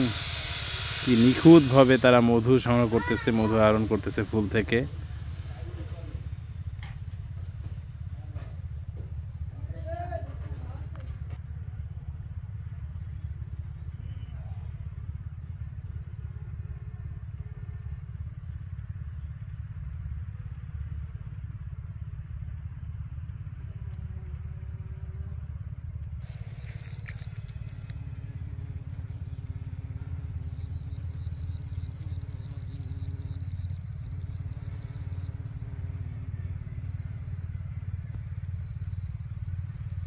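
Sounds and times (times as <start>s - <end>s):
honeybees buzzing: 0.0s - 4.8s, 23.5s - 40.0s
rapid high chirping: 26.2s - 28.1s, 30.2s - 35.6s.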